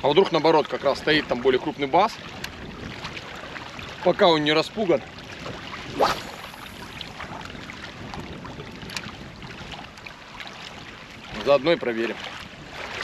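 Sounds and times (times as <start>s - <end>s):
wind on microphone: 0.0s - 13.0s
fishing rod cast swish: 5.8s - 7.0s.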